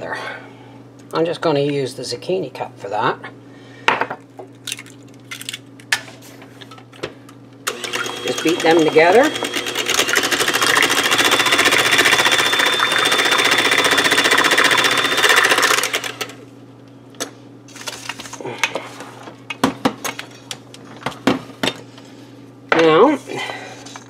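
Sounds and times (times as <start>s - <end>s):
electric hand mixer whining: 7.7s - 16.4s.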